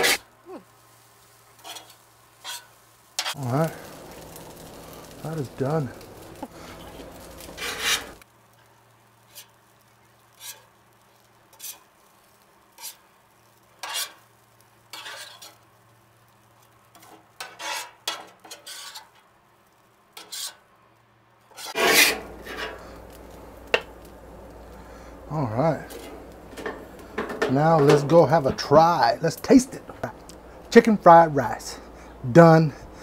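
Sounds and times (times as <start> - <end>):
metal spatula scraping griddle: 0.0 - 0.2, 1.6 - 5.0, 6.4 - 8.2, 9.2 - 9.6, 10.3 - 10.8, 11.5 - 11.9, 12.7 - 13.0, 13.8 - 14.3, 14.9 - 15.6, 16.9 - 19.3, 20.2 - 20.7, 21.5 - 24.1, 25.6 - 29.0.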